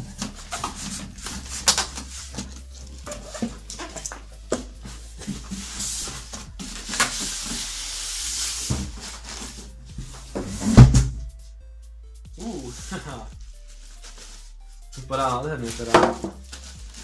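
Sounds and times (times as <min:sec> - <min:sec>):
cardboard box sliding scrape: 0:04.8 - 0:10.9
cardboard knocks and rustles: 0:15.9 - 0:16.4.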